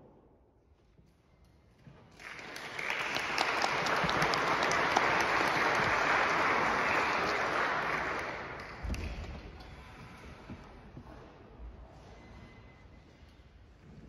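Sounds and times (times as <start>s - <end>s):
audience applauding: 2.1s - 9.0s.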